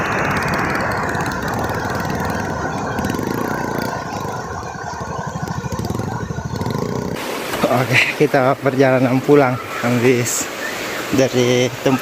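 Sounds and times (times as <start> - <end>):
motorcycle engine idling: 0.0 - 7.2.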